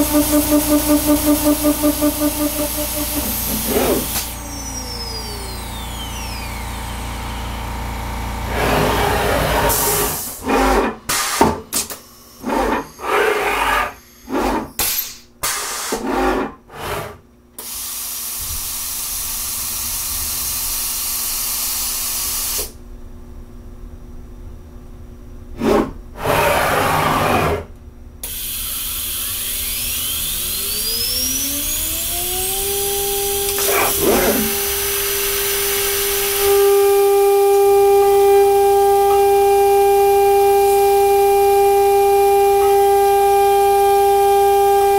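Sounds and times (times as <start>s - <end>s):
spindle whine: 0.0s - 10.3s, 28.6s - 44.9s
air blasts hissing: 33.3s - 36.6s.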